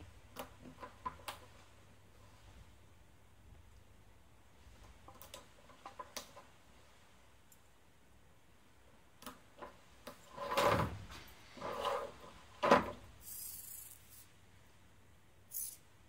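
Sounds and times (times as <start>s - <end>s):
parts scraping on wooden table: 10.1s - 13.5s.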